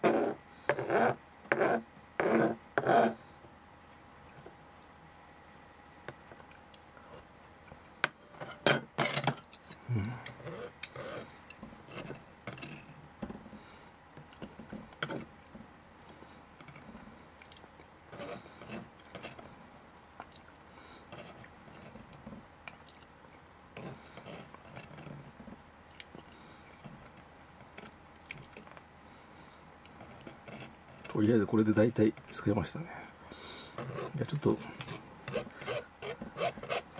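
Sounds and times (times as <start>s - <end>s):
chopsticks scraping on cutting board: 0.0s - 3.2s, 10.4s - 12.9s, 18.1s - 19.4s, 33.8s - 36.9s.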